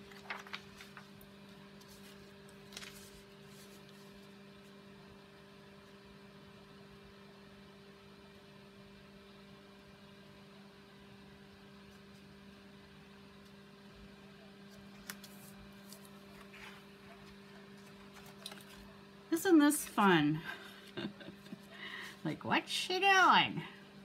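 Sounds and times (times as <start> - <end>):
card stock rustling: 0.0 - 4.4, 14.7 - 18.9
low electrical hum: 0.0 - 24.0.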